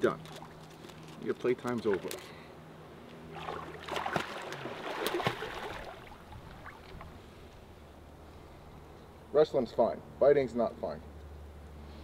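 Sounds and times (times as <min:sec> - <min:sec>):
water splashing in a pool: 0:03.3 - 0:07.1.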